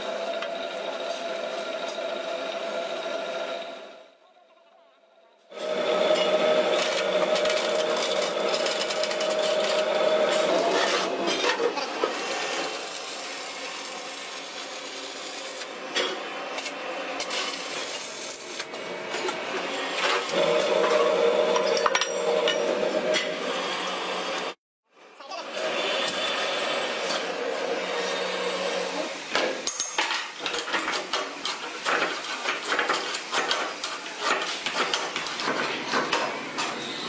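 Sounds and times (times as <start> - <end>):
arc welding crackle and sputter: 5.5 - 11.1, 12.2 - 15.8, 16.5 - 18.8.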